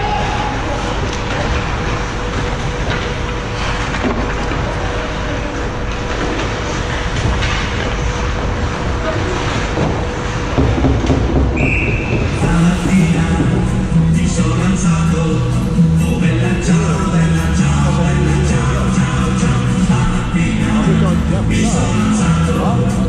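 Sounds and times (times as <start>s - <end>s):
spectators: 0.0s - 23.0s
referee's whistle: 11.6s - 12.4s.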